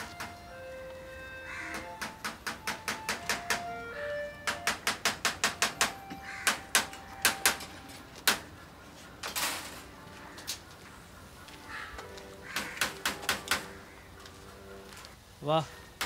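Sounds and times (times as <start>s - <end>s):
taps and clicks on wire birdcage: 1.7s - 3.6s, 4.5s - 8.4s, 12.5s - 13.7s.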